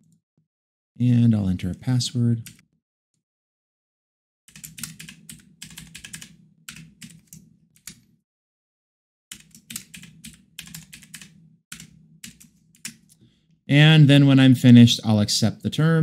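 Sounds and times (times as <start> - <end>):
typing on a keyboard: 4.5 - 8.0, 9.3 - 13.2.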